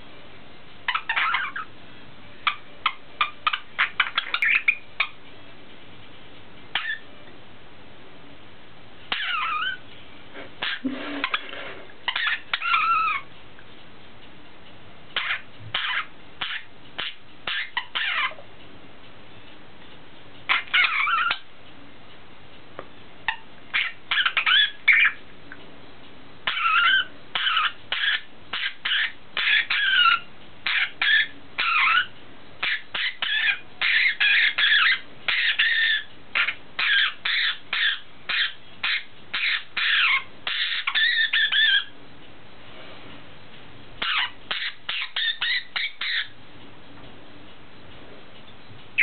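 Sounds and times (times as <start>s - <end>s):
budgerigars chirping: 0.8s - 1.7s, 2.4s - 5.2s, 6.7s - 7.1s, 9.1s - 9.8s, 10.6s - 13.3s, 15.2s - 18.4s, 20.4s - 21.5s, 23.2s - 25.2s, 26.4s - 42.0s, 44.0s - 46.4s.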